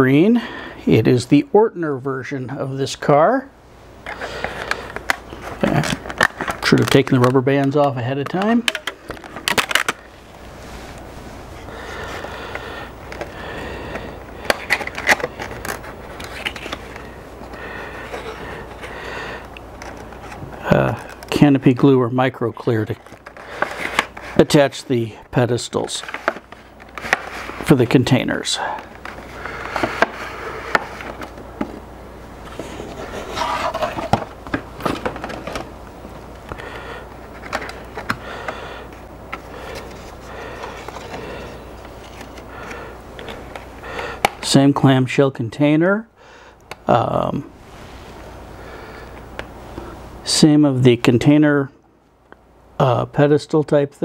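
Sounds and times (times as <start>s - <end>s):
plastic packaging crinkling: 4.1s - 11.0s, 11.6s - 18.6s
cardboard box handling clicks and rustles: 14.4s - 17.1s, 22.9s - 24.4s, 32.5s - 35.7s.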